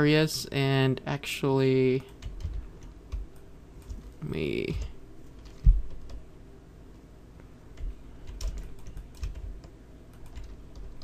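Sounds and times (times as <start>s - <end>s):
keyboard keys tapping: 2.0s - 6.2s, 7.7s - 11.0s.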